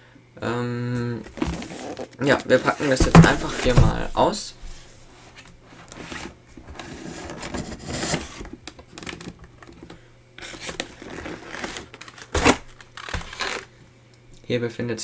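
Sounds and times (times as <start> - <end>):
cardboard box scraping and rustling: 1.2 - 8.6, 10.4 - 13.6
plastic packaging crinkling: 10.4 - 13.7.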